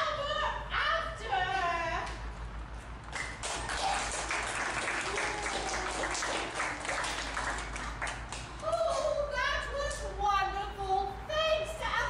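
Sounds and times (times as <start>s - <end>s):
audience applauding: 3.1s - 8.5s.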